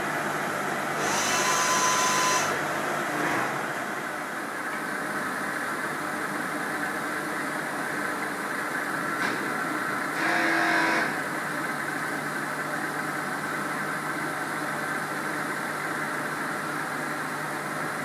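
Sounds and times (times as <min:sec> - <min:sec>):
milling machine humming: 0:00.0 - 0:06.6, 0:09.1 - 0:16.0.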